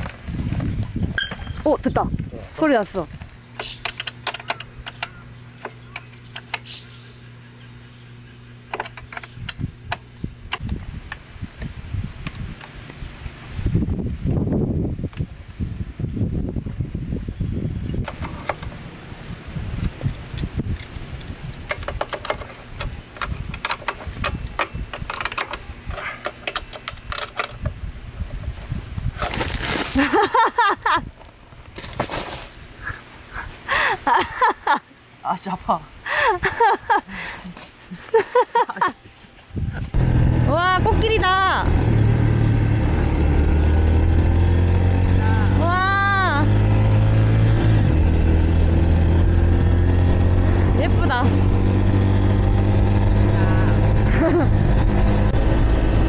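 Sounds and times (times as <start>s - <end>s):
wind buffeting microphone: 0.0s - 3.2s, 9.3s - 25.9s, 27.5s - 30.0s, 39.4s - 56.0s.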